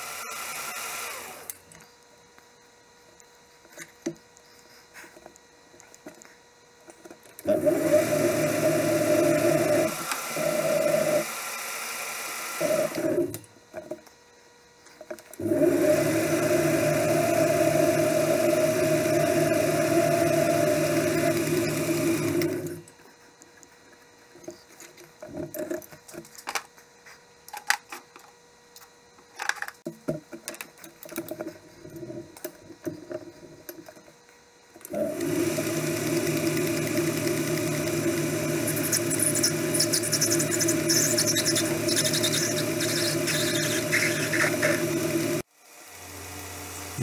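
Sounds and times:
metal lathe running: 15.4 - 22.8, 34.9 - 45.4
high scratchy squeal: 38.7 - 44.9.

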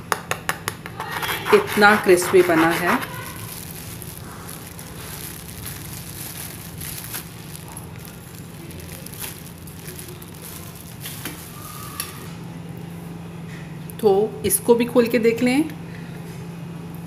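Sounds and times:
pizza crackling on a pan: 1.0 - 11.9
plastic bag rustling and crinkling: 1.4 - 12.3.

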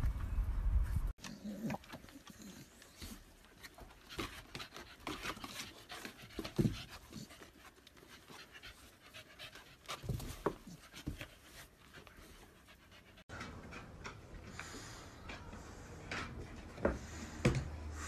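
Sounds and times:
dog panting: 1.8 - 13.4.

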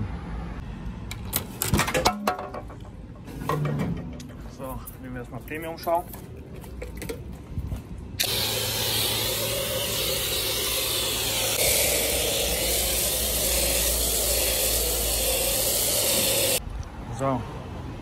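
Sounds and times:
pressure washer lance spraying foam: 8.2 - 16.6.

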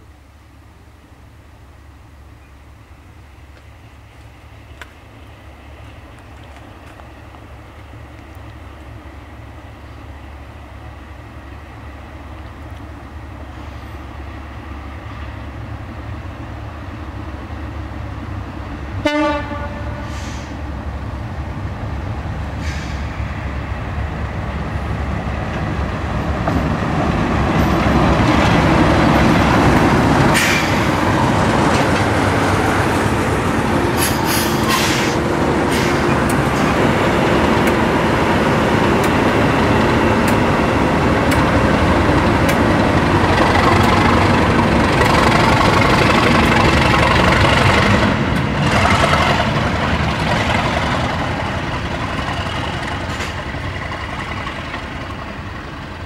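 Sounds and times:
diesel locomotive engine passing: 0.0 - 56.0
wheels clicking on rails: 34.0 - 56.0.

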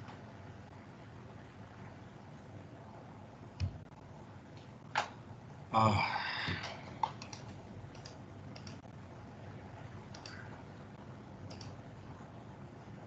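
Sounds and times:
keyboard keystrokes: 7.0 - 8.8, 11.4 - 11.8.

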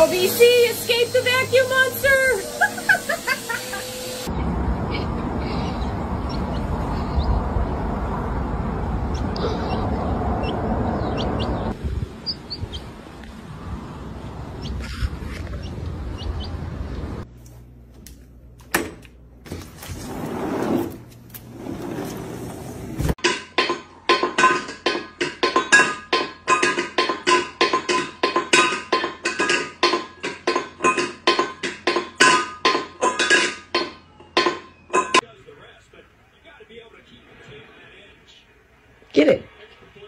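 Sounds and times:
metal bowl clanging on tile floor: 23.2 - 35.2.

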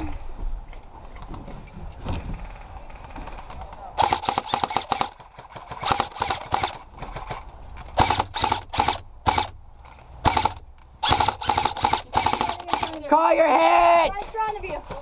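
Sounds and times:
airsoft rifle shots: 4.0 - 7.4, 8.0 - 9.6, 10.2 - 13.1.

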